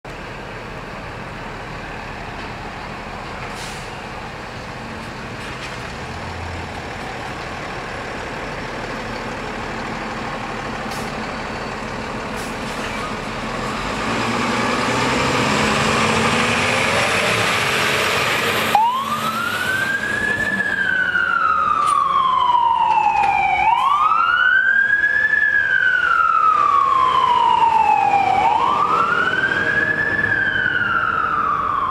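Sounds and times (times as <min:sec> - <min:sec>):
fire engine engine: 0:00.0 - 0:31.9
siren wailing: 0:18.6 - 0:31.9.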